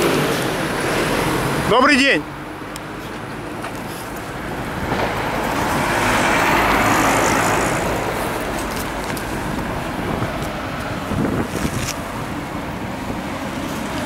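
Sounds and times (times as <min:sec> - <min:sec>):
street traffic: 0:00.0 - 0:14.0
vehicle driving past: 0:04.6 - 0:08.6.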